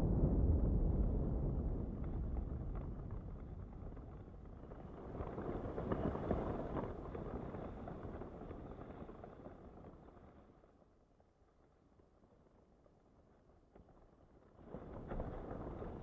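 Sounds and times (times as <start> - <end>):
wind rumbling: 0.0 - 8.8.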